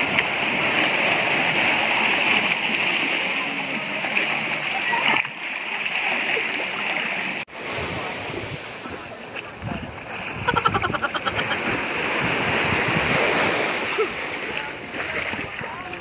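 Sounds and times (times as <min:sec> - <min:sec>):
small waves washing onto shore: 0:00.0 - 0:16.0
water splashing: 0:00.0 - 0:16.0
wind on microphone: 0:07.6 - 0:16.0.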